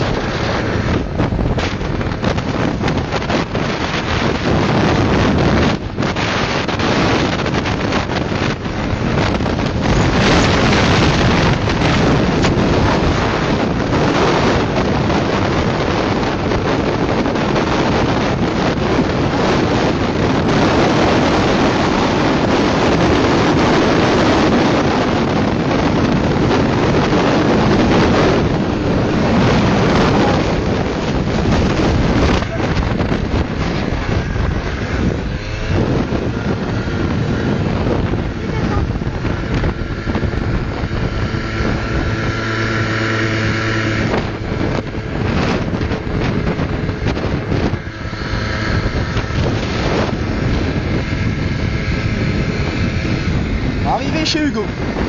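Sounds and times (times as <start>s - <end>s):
moped engine running: 0.0s - 55.0s
wind buffeting microphone: 0.0s - 55.0s.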